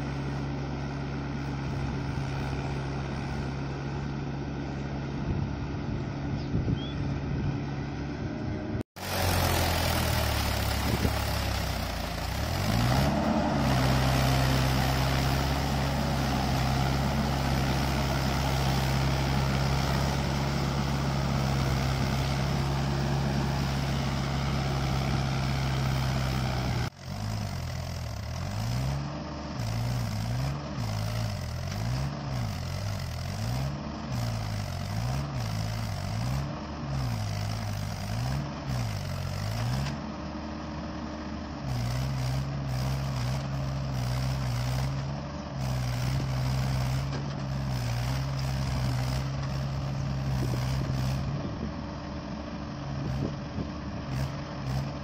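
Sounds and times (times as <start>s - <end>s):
tractor diesel engine running: 0.0s - 55.0s.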